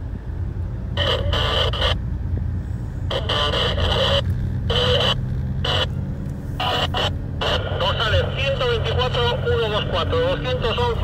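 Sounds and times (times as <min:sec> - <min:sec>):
car engine and road rumble: 0:00.0 - 0:11.0
crackly radio voice: 0:00.9 - 0:02.0, 0:03.1 - 0:11.0.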